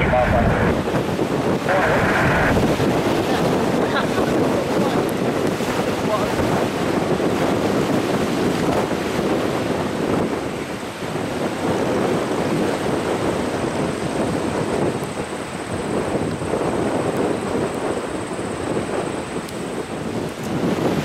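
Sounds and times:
jet engines roaring: 0:00.0 - 0:06.3.

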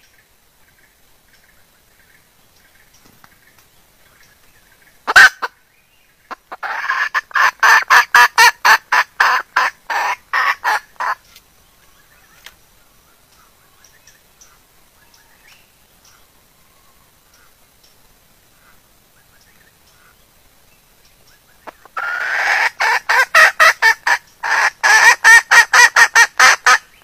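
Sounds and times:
hen cackling: 0:05.0 - 0:05.6, 0:06.3 - 0:11.2, 0:21.6 - 0:27.0.

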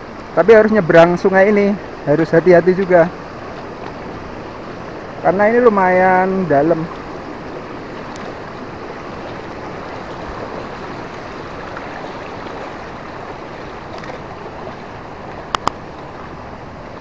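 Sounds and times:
river rushing over rocks: 0:00.0 - 0:17.0
sharp clicks: 0:15.5 - 0:15.8.

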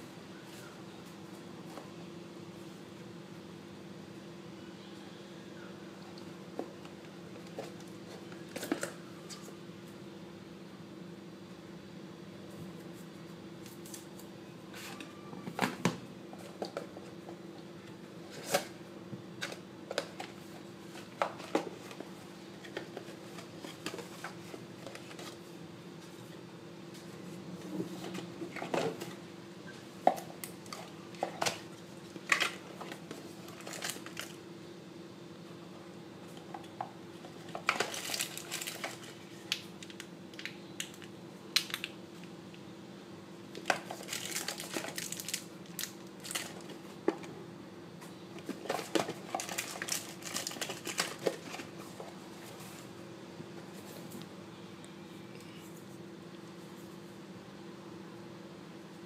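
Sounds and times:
steady low hum: 0:16.0 - 0:59.0
plastic rustling: 0:30.0 - 0:34.4, 0:37.3 - 0:41.9, 0:43.6 - 0:47.0, 0:48.4 - 0:52.9.

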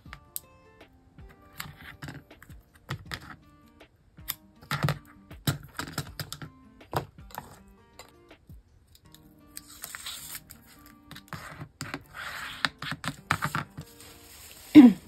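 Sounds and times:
soft background music: 0:00.0 - 0:15.0
paper handled by hand: 0:09.6 - 0:15.0.

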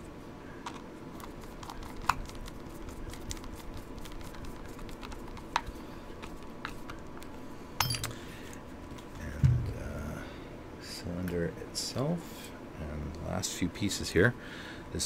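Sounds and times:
dull thump: 0:09.4 - 0:09.8.

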